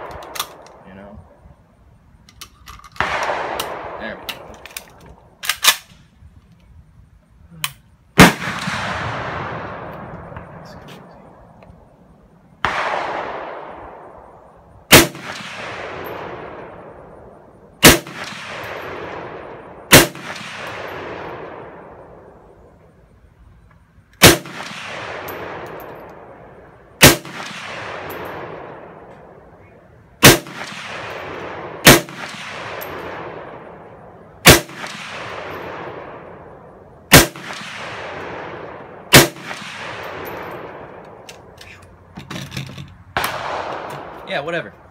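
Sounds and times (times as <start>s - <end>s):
rifle shots echoing: 3.0s - 5.9s, 8.2s - 11.6s, 12.6s - 22.6s, 24.2s - 29.6s, 30.2s - 41.6s, 43.1s - 44.7s.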